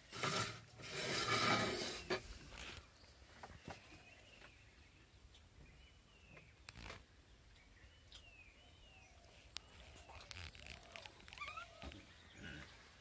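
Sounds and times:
faint bird chirps: 2.7s - 12.9s.

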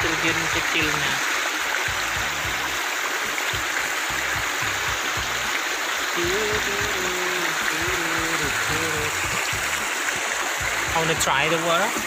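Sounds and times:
water splashing into pool: 0.0s - 12.0s.

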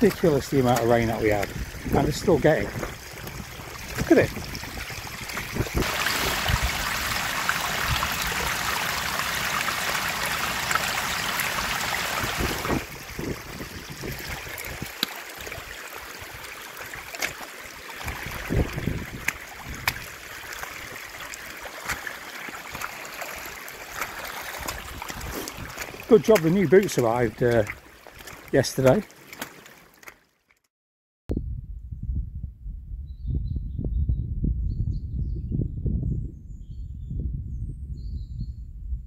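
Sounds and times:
rainwater rushing down a path: 0.0s - 30.2s.

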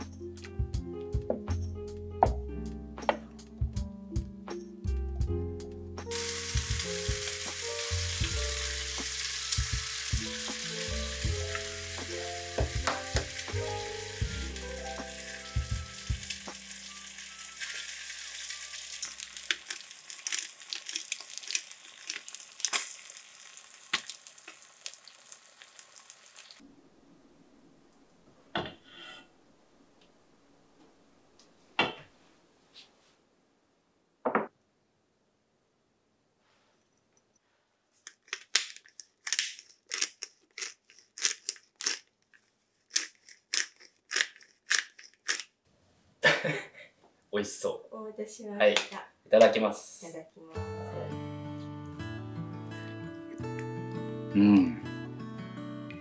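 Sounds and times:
gentle background music: 0.0s - 19.6s, 50.4s - 56.0s
porridge simmering hiss: 6.1s - 27.1s.

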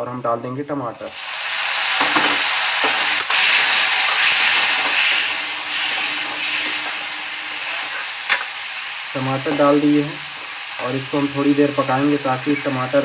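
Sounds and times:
food sizzling in hot oil: 1.0s - 13.0s
spatula stirring: 3.2s - 8.5s.

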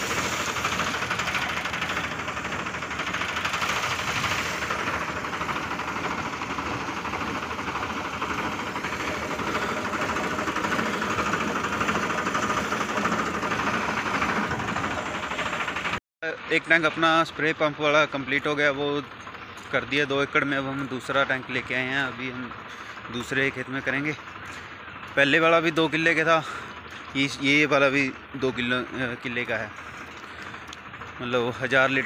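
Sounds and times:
tractor diesel engine running: 0.0s - 32.0s.

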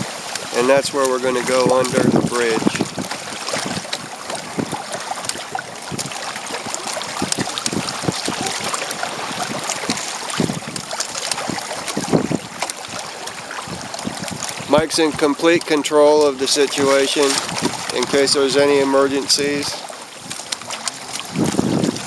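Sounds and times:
water slapping against kayak hull: 0.0s - 22.0s
wind buffeting microphone: 0.0s - 22.0s.

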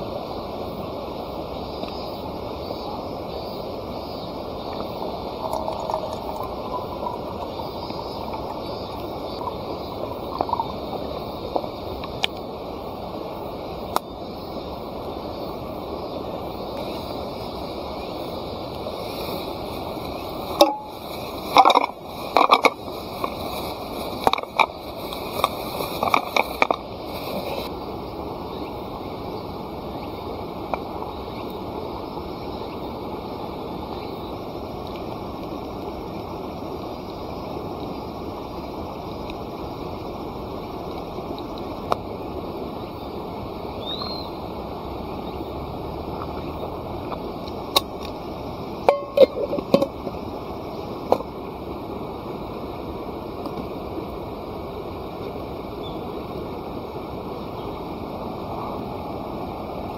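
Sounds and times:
insects chirping: 0.0s - 59.9s
campfire crackling and popping: 4.7s - 12.5s.

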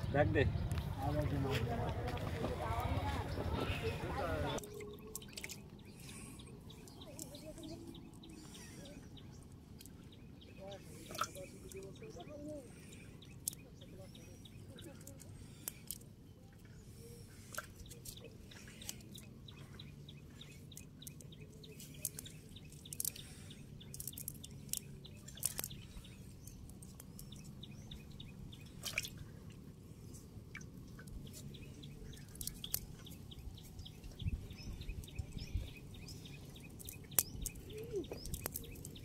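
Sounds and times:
water dripping: 4.6s - 8.7s, 20.6s - 29.6s, 30.4s - 39.0s.

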